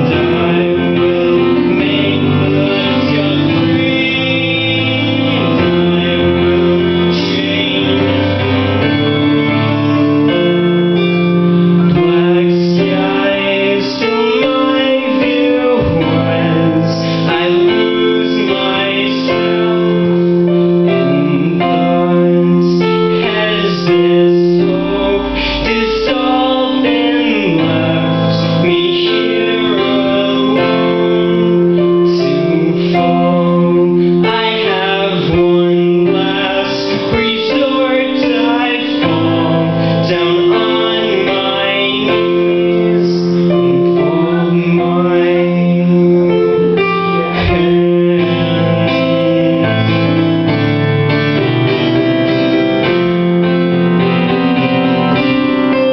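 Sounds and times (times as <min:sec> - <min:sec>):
digital piano chords: 0:00.0 - 0:55.9
man singing: 0:00.0 - 0:55.9.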